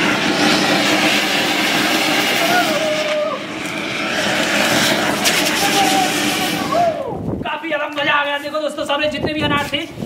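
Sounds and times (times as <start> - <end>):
fountain fireworks hissing: 0.0 - 7.4.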